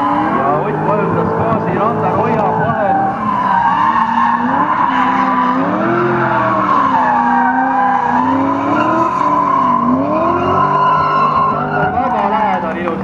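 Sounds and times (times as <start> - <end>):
car engines revving: 0.0 - 13.0
tyres squealing: 0.0 - 13.0.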